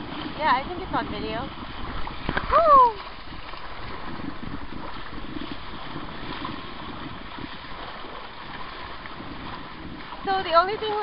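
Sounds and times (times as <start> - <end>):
water noise from sailboat: 0.0 - 11.0
wind buffeting microphone: 0.0 - 11.0.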